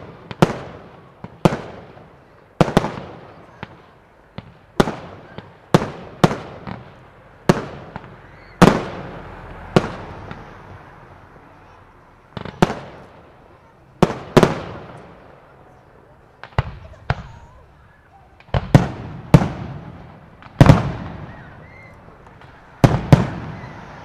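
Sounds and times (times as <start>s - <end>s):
small firework pops: 0.0s - 10.6s, 12.3s - 13.2s, 16.4s - 24.0s
fireworks bangs: 0.0s - 24.0s.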